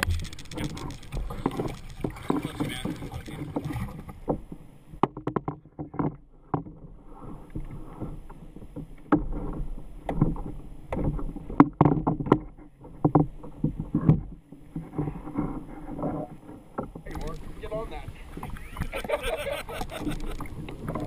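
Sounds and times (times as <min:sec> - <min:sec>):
knocks and clatter on kayak: 0:00.0 - 0:21.0
wind rumble on microphone: 0:00.0 - 0:21.0.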